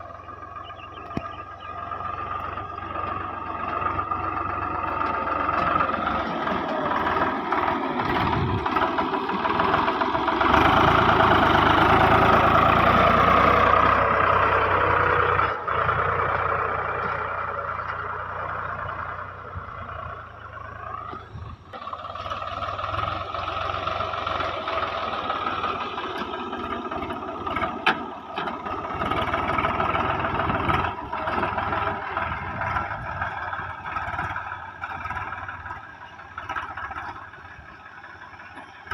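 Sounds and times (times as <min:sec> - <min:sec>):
tractor diesel engine under load: 0:00.0 - 0:38.9.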